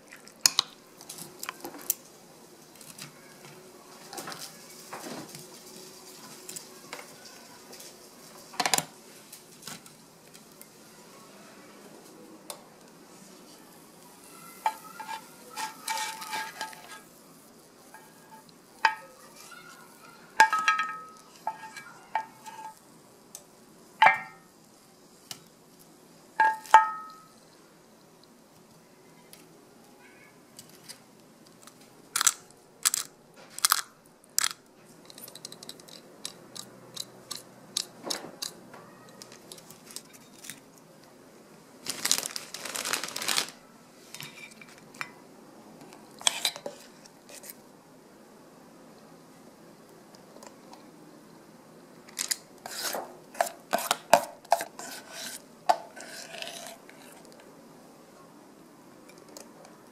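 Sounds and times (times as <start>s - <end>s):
clinks on ceramic plates: 20.4s - 22.8s, 24.0s - 24.4s, 26.4s - 27.3s.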